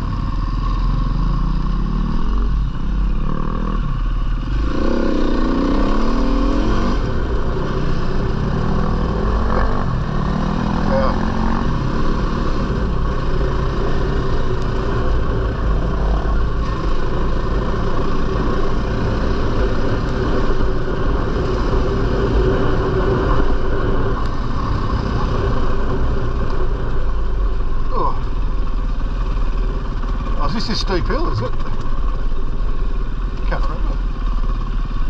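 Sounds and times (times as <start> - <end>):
dirt bike engine running: 0.0 - 35.0
rush of noise: 0.0 - 35.0.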